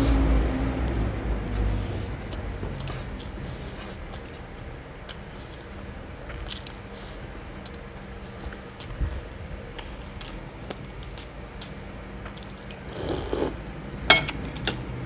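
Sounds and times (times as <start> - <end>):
wet chewing: 1.5 - 13.5
slurping soup from a spoon: 12.9 - 13.6
sharp clink: 14.1 - 14.4.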